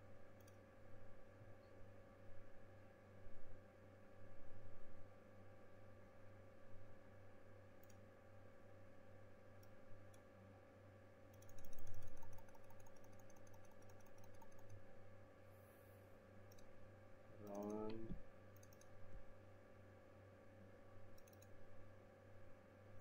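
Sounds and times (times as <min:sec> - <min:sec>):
electrical hum: 0:00.0 - 0:23.0
mouse and keyboard clicks: 0:11.3 - 0:14.8, 0:17.4 - 0:19.0, 0:21.2 - 0:21.6.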